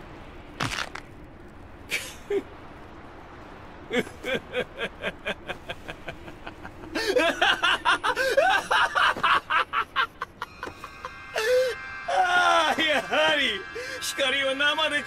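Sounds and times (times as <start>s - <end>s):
man laughing maniacally: 1.9s - 2.5s, 3.8s - 15.0s.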